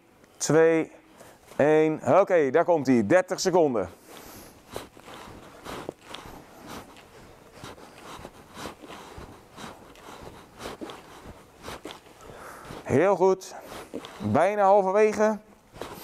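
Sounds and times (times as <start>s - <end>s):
bare feet shifting on mats: 4.0s - 16.0s
cloth swishing: 15.2s - 16.0s.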